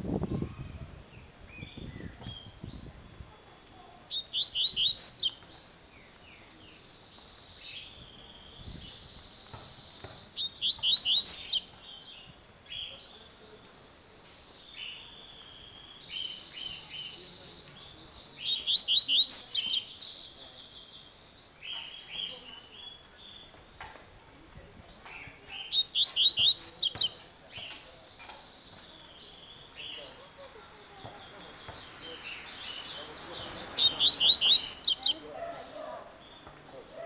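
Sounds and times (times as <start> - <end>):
bird singing high chirps: 1.1 - 3.1, 4.1 - 23.6, 24.9 - 35.3.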